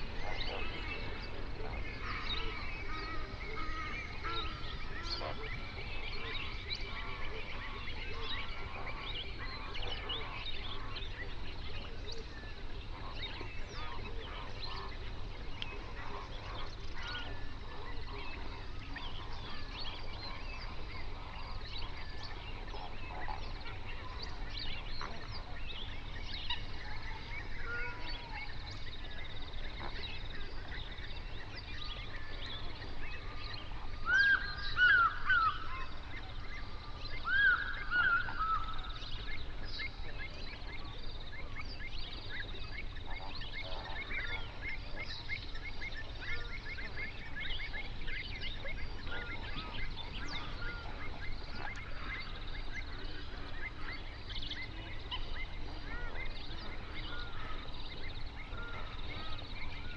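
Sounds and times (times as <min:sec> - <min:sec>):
flamingos chattering: 0:00.0 - 0:59.9
flamingos honking: 0:46.0 - 0:59.9.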